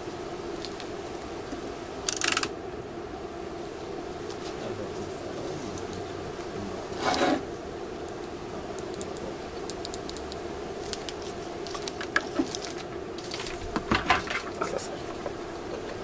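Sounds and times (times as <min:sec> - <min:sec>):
steady hum: 0:00.0 - 0:16.0
small clicks: 0:02.0 - 0:02.5, 0:08.0 - 0:13.4
scraping rustle: 0:06.4 - 0:07.5, 0:10.7 - 0:16.0.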